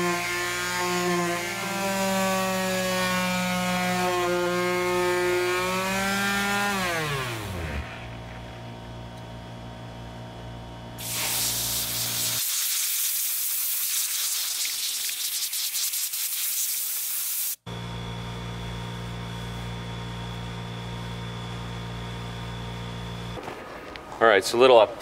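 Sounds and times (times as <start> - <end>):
sander motor hum: 0.0 - 10.8, 16.8 - 23.4
harsh hiss of sandpaper cleaning: 11.0 - 17.6.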